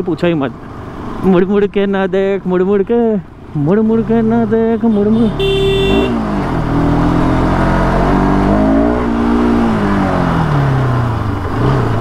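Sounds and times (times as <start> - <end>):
motorcycle engine revving: 3.8 - 12.0.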